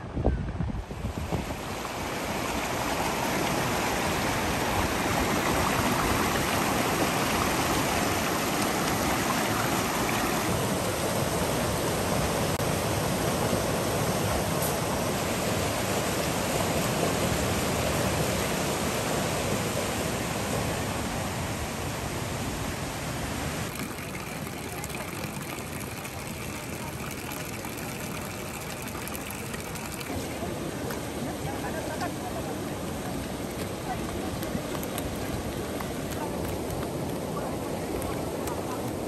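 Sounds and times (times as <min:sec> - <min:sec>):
river rushing over stones: 0:01.0 - 0:39.0.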